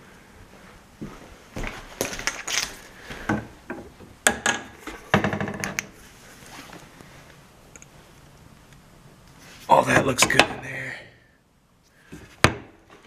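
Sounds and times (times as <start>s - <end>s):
cabinet doors clicking and knocking: 3.3s - 5.9s, 12.4s - 12.8s.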